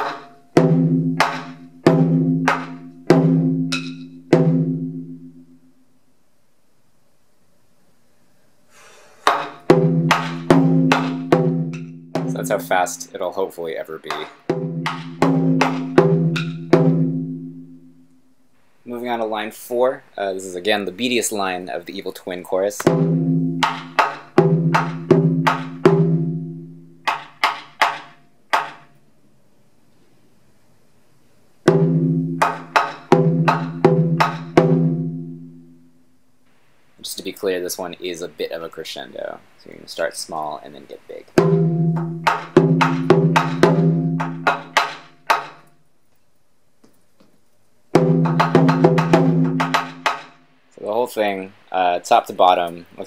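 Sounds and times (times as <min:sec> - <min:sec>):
taiko drum hits: 0:00.0 - 0:05.2, 0:09.3 - 0:12.8, 0:14.1 - 0:17.6, 0:22.8 - 0:28.8, 0:31.7 - 0:35.6, 0:41.4 - 0:45.6, 0:48.0 - 0:50.4
wooden drumstick clacks: 0:27.1 - 0:29.0, 0:42.3 - 0:45.7.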